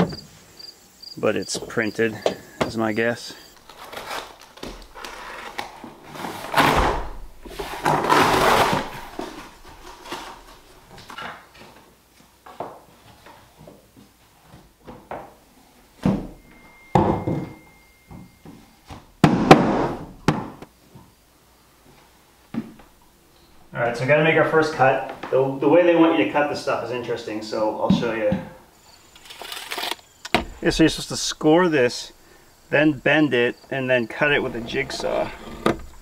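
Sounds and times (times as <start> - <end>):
scraping and rustling: 3.4 - 11.8, 29.0 - 33.0, 34.1 - 36.0
knocks of flooring planks: 19.2 - 20.7
heavy thuds: 30.3 - 31.3.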